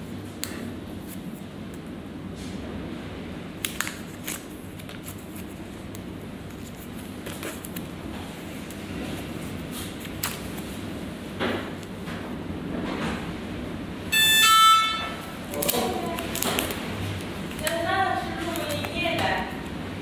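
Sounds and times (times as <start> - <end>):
plastic album pages crackling: 3.6 - 10.9, 15.5 - 19.6.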